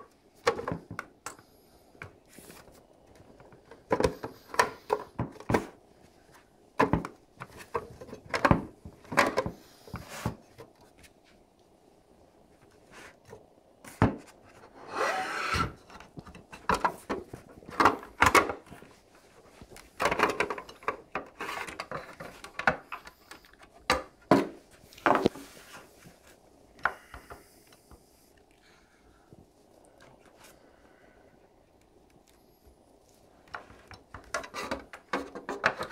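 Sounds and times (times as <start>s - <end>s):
plastic cover knocks and clicks: 6.8s - 7.2s
plastic rubbing and scraping: 13.9s - 22.8s, 33.6s - 35.9s.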